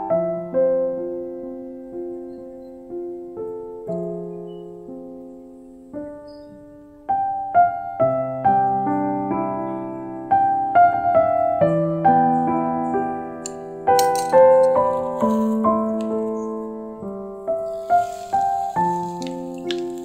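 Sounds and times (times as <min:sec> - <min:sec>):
gentle piano melody: 0:00.0 - 0:20.0.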